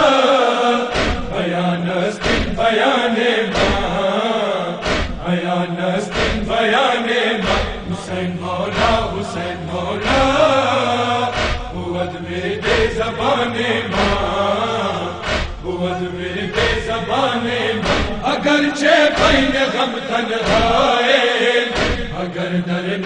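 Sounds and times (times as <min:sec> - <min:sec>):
man chanting a lament: 0:00.0 - 0:23.0
sharp rhythmic strikes: 0:00.9 - 0:01.4, 0:04.8 - 0:05.3, 0:17.7 - 0:18.5, 0:19.1 - 0:19.7, 0:21.8 - 0:22.2.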